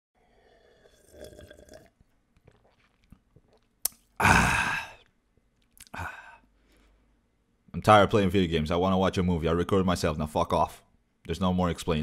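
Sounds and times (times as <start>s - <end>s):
soft vocal noises: 2.5s - 7.0s
man screaming: 4.2s - 5.0s.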